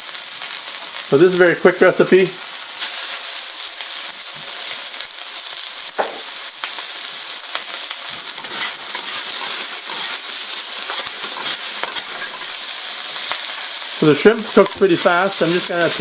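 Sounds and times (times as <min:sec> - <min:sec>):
food sizzling in hot oil: 0:00.0 - 0:16.0
metal spatula scraping wok: 0:08.0 - 0:16.0.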